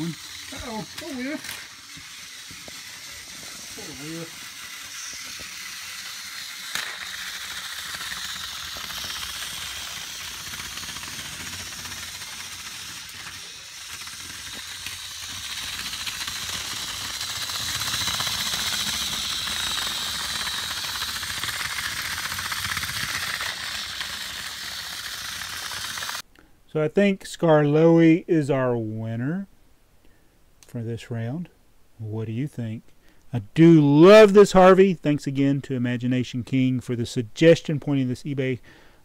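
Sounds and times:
toy train motors whirring: 0.0 - 26.3.

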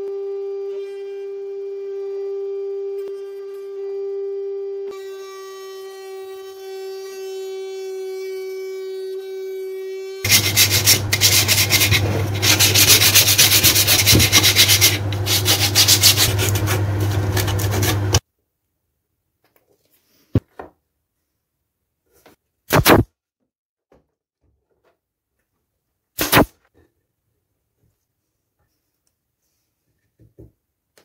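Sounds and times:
sanding block scratching wood: 10.2 - 18.2.

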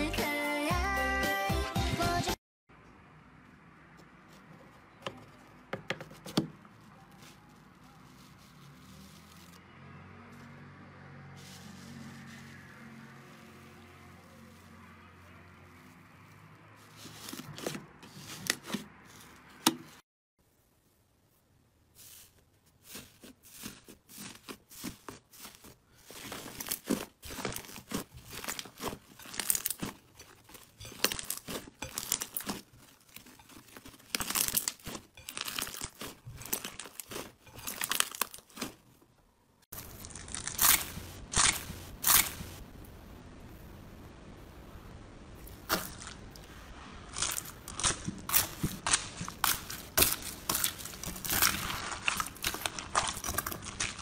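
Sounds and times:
crunchy foam bead slime: 4.2 - 9.7, 21.8 - 39.0, 39.7 - 42.7, 45.4 - 54.0
hands squeezing sticky slime: 22.0 - 38.8, 47.1 - 54.0.

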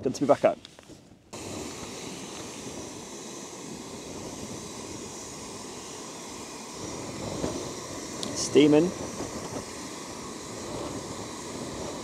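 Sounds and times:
gas stove burner hissing: 0.0 - 12.0.

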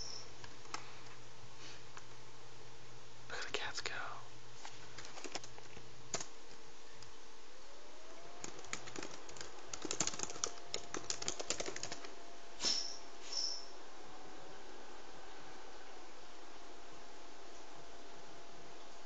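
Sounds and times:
laptop keyboard typing: 4.9 - 6.4, 8.4 - 12.2
short high-pitched squeak: 12.6 - 13.8.

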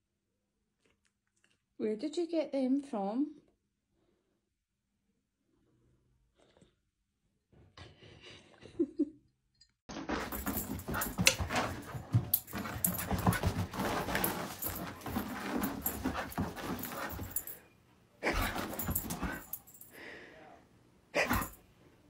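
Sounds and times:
light jingles: 10.1 - 20.0
dog panting: 10.2 - 17.6, 18.2 - 19.7.

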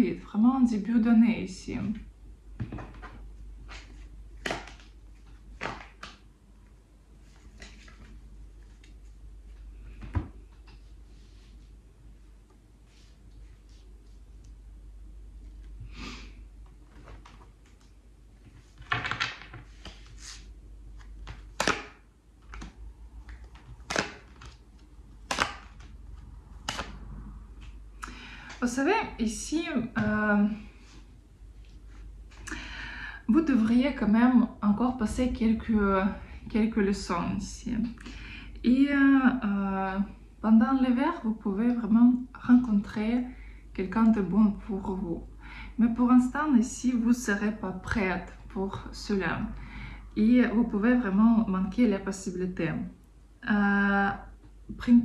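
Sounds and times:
playing cards being shuffled: 16.9 - 27.0
sharp card snaps: 25.2 - 25.8, 26.6 - 27.0.

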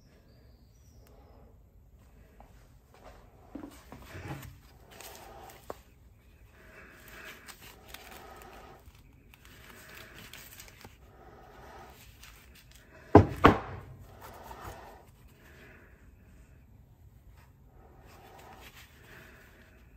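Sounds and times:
gloved hands handling metal: 3.4 - 15.2.

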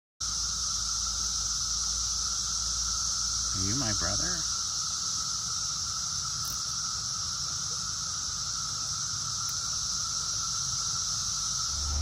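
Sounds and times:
cicadas buzzing: 0.2 - 12.0
low steady hum: 11.6 - 12.0.

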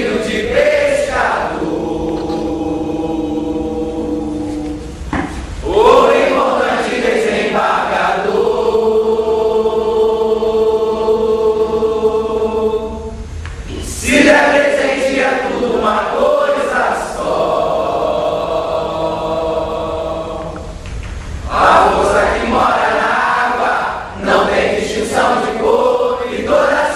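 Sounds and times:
chorus singing a chant: 0.0 - 4.9, 5.6 - 20.8, 21.4 - 26.9.

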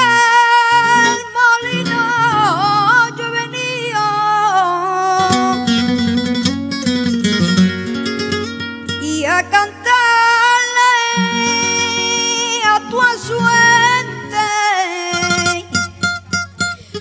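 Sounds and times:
boy singing into a microphone: 0.0 - 5.7, 9.0 - 16.0
flamenco guitar strumming: 0.0 - 17.0.

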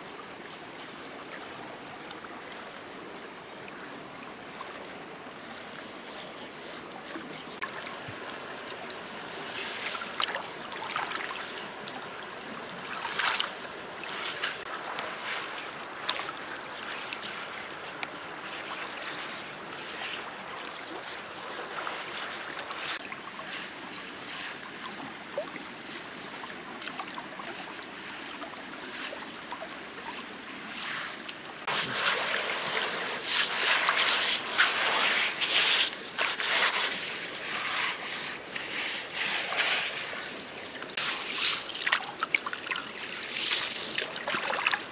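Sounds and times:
river water running: 0.0 - 44.9
hands scooping wet gravel: 30.8 - 40.2, 40.9 - 42.2, 43.0 - 44.4.

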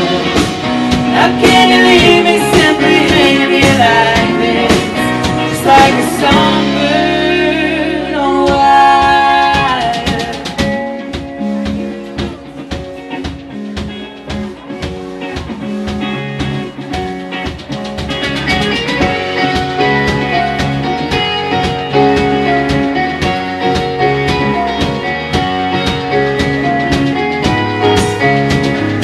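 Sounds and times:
woman singing: 0.0 - 11.0
live rock band: 0.0 - 29.0.

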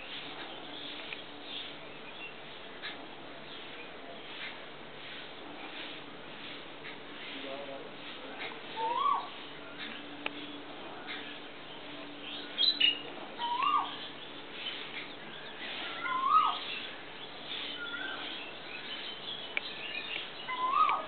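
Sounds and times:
small birds chirping: 0.0 - 21.0
cuckoo calling: 8.4 - 11.3, 12.2 - 16.9, 17.5 - 21.0.

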